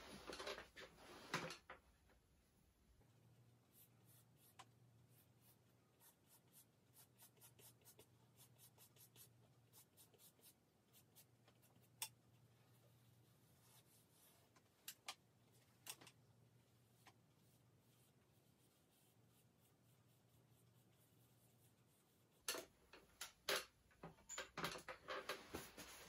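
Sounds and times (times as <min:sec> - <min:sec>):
charcoal scratching on paper: 0:03.7 - 0:12.0.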